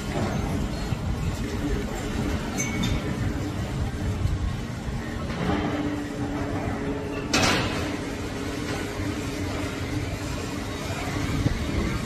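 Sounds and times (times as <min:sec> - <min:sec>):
construction machinery running: 0:00.0 - 0:12.0.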